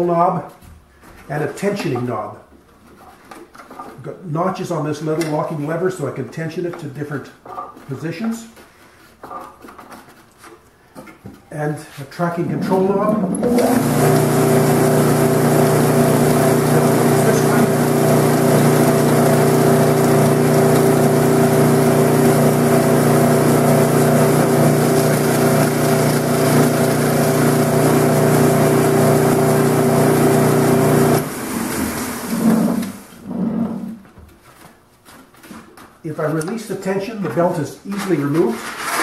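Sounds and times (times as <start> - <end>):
belt-disc sander humming: 12.6 - 33.0.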